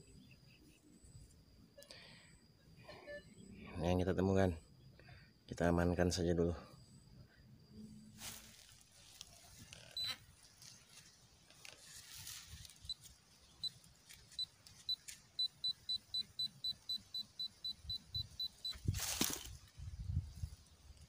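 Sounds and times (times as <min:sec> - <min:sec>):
pinpointer high-pitched beeps: 0:10.0 - 0:10.2, 0:12.8 - 0:18.9.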